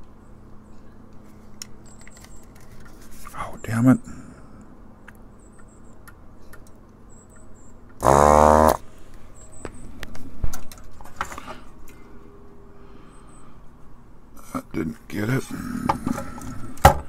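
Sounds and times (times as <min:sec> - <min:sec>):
desoldering vacuum pump burst: 0:08.0 - 0:08.8.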